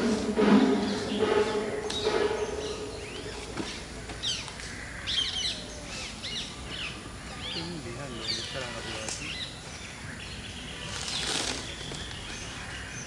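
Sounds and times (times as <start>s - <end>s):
music: 0.0s - 2.3s
birds chirping: 0.0s - 13.0s.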